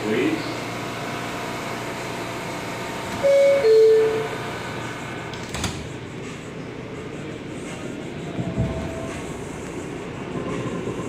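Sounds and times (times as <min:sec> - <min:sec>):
subway car hum: 0:00.0 - 0:11.0
two-note door chime: 0:03.2 - 0:04.3.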